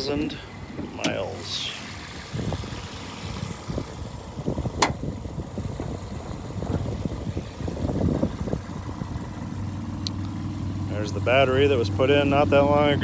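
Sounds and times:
wind buffeting microphone: 0:02.0 - 0:09.7.

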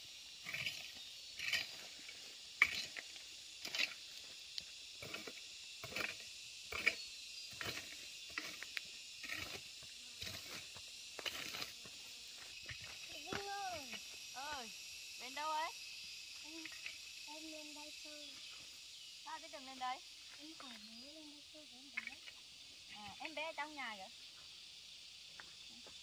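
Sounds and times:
high insect drone: 0:00.0 - 0:26.0
hand garden tool scraping soil: 0:00.4 - 0:02.0, 0:02.6 - 0:04.1, 0:05.0 - 0:13.8.

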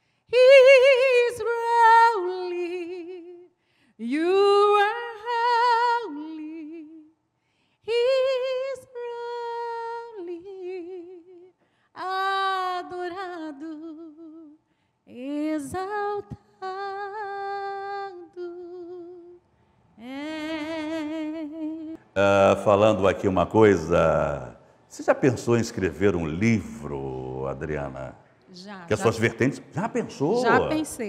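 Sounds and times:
woman singing unaccompanied: 0:00.3 - 0:07.1, 0:07.9 - 0:19.4, 0:20.0 - 0:22.0, 0:30.4 - 0:31.0.

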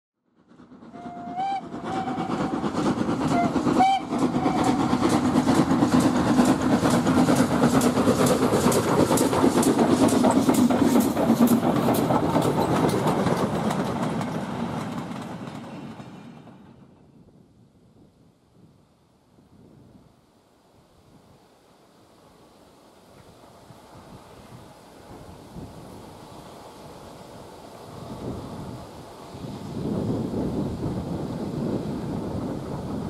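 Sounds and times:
train wheels clattering: 0:00.4 - 0:16.9
steam train whistle: 0:00.9 - 0:05.0.

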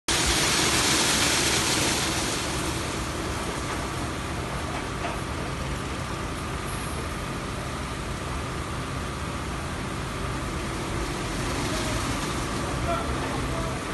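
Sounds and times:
car wash brushes rushing: 0:00.1 - 0:05.0, 0:10.6 - 0:13.9.

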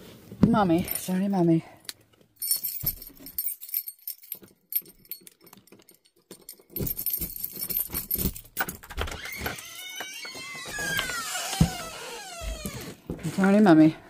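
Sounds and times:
handling thumps and knocks: 0:02.4 - 0:09.6.

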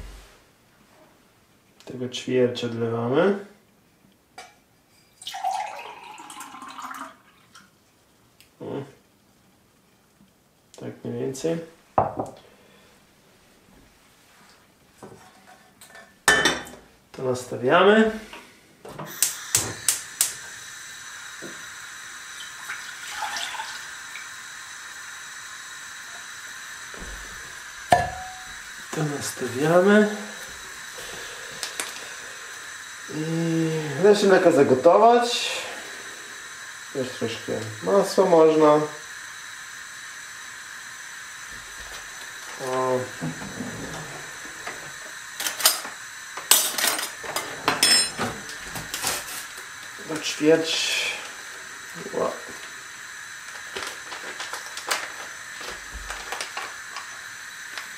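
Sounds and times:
gas burner hissing: 0:00.0 - 0:00.6, 0:10.7 - 0:57.9
milk pouring into metal pot: 0:05.2 - 0:07.6, 0:22.2 - 0:24.5
gas hob igniter clicking: 0:18.9 - 0:22.6, 0:24.0 - 0:33.1, 0:36.4 - 0:50.4, 0:51.2 - 0:57.9.

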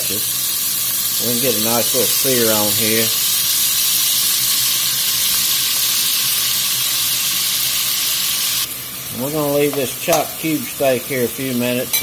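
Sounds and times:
meat sizzling in hot oil: 0:00.0 - 0:12.0.

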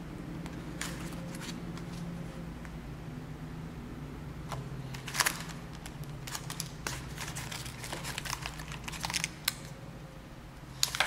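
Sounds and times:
plastic bags crinkling: 0:04.9 - 0:09.7.

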